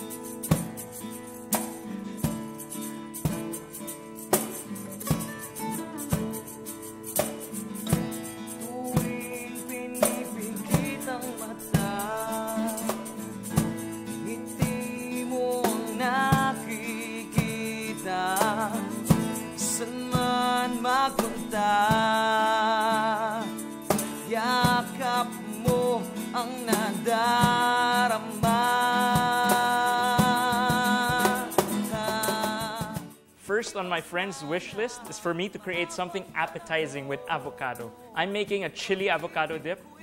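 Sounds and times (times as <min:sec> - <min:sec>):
acoustic guitars strumming: 0:00.0 - 0:40.0
man singing: 0:08.5 - 0:13.3, 0:14.1 - 0:40.0.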